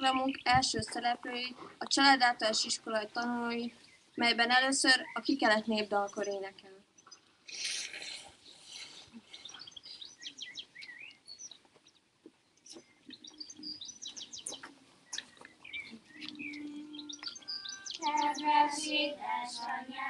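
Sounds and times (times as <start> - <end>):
small birds chirping: 0.0 - 20.0
children singing a folk song: 16.2 - 20.0.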